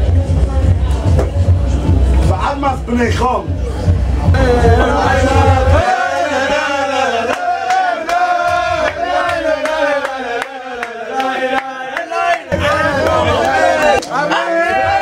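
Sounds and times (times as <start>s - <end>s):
deep bass beat: 0.0s - 5.9s
men singing in unison: 4.4s - 14.0s.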